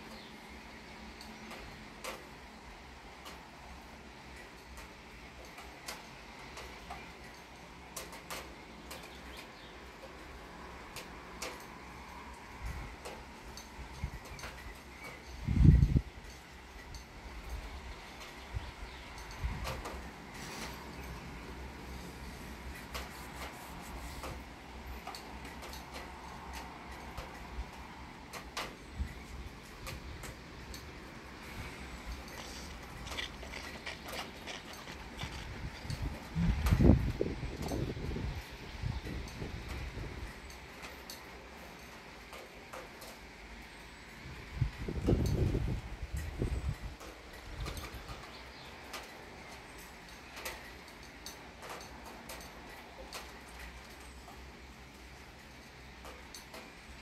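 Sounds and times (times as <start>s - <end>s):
steady rain hiss: 0.0s - 57.0s
wind rumble on microphone: 12.3s - 24.7s, 25.4s - 40.6s, 44.2s - 50.9s.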